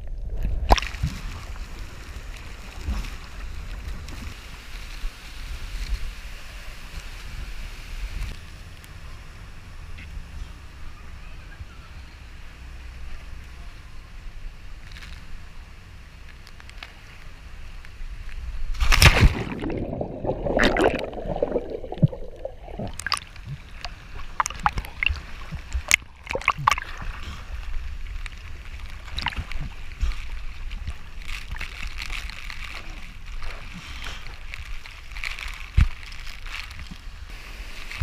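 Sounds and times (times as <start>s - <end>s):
water sloshing and splashing: 18.7s - 38.0s
rushing water: 18.8s - 38.0s
muffled underwater gurgling: 19.3s - 27.5s.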